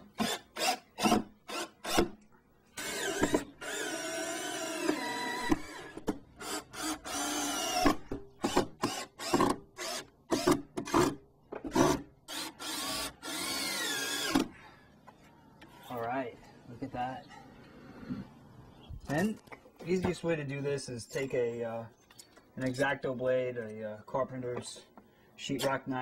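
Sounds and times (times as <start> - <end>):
power drill driving screws: 0.1 - 2.2, 2.8 - 14.5.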